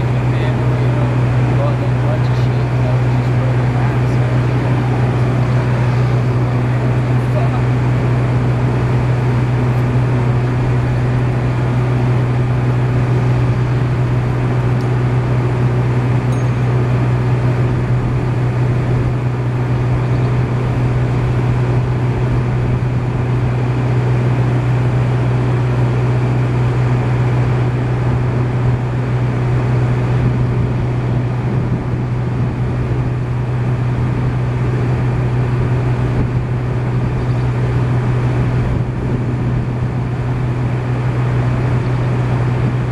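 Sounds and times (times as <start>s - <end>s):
engine droning steadily: 0.0s - 42.9s.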